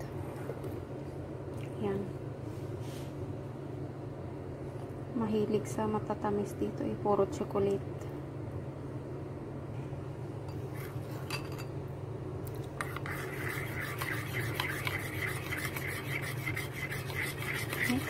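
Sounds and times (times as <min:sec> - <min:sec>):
spoon scraping ceramic bowl: 0:12.8 - 0:18.0.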